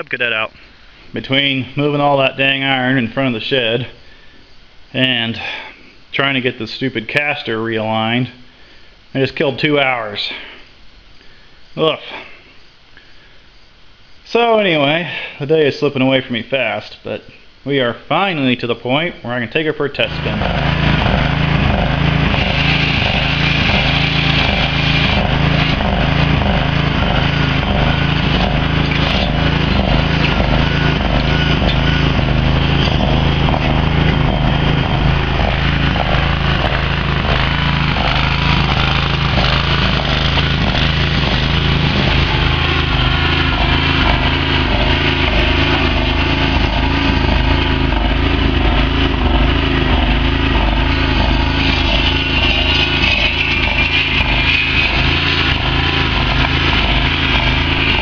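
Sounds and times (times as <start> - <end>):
garden tractor engine running: 19.5 - 58.0.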